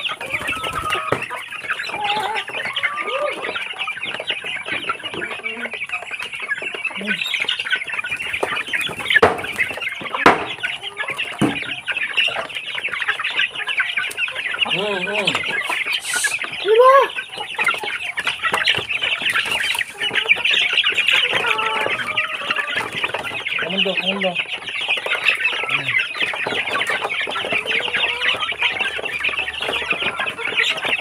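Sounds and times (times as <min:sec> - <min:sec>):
chickens clucking: 0:00.0 - 0:31.0
chickens squawking: 0:00.0 - 0:31.0
wings flapping: 0:00.1 - 0:01.2.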